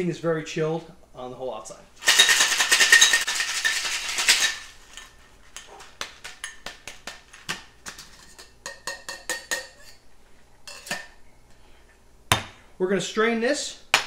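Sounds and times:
ice rattling in cocktail shaker: 2.0s - 5.1s.

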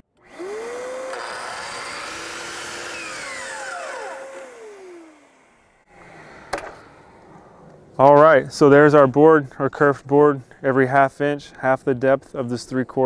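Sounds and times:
miter saw whining: 0.0s - 5.8s.

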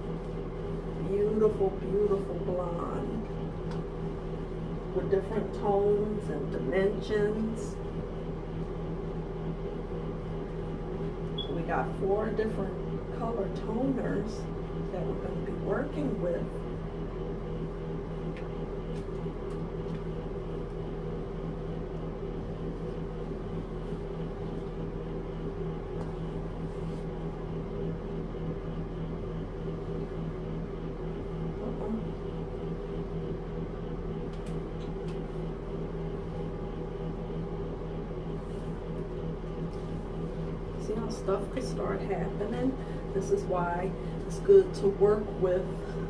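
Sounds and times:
machine hum: 0.0s - 46.0s.

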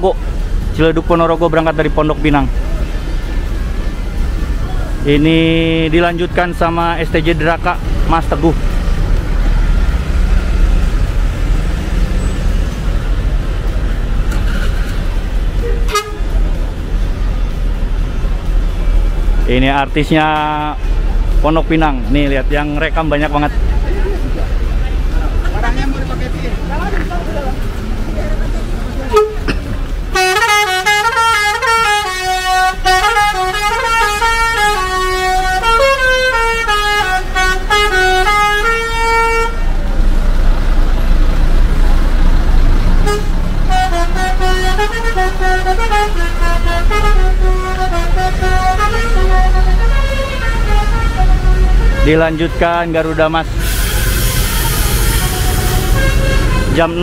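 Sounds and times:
bus engine rumbling: 0.0s - 57.0s
short horn toot: 15.6s - 16.3s
multi-tone horn playing tune: 15.6s - 16.4s, 29.1s - 29.5s, 30.1s - 39.7s, 43.0s - 57.0s.

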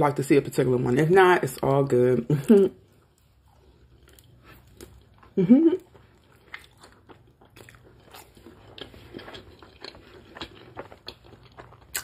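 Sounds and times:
person chewing crispy food: 2.8s - 12.0s.

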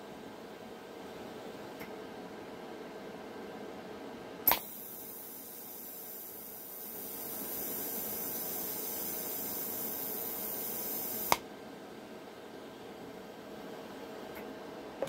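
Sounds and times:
welding arc hissing: 4.5s - 11.4s.

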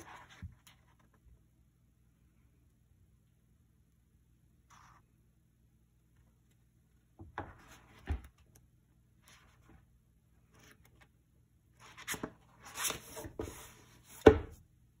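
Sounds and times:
book thumping on wooden table: 7.2s - 8.4s, 12.1s - 14.6s
book pages flipping: 10.4s - 11.2s, 11.8s - 14.3s.

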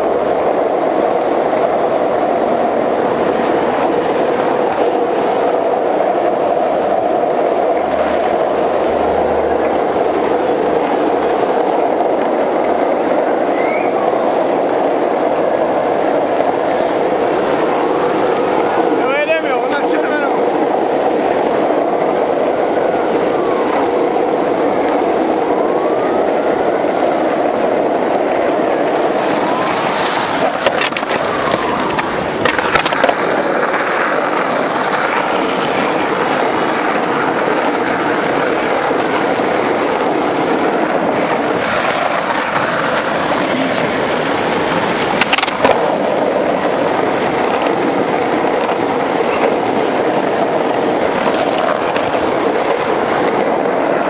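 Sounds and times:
skateboard wheels rolling on asphalt: 0.0s - 54.0s
sharp skateboard clacks: 27.7s - 54.0s.

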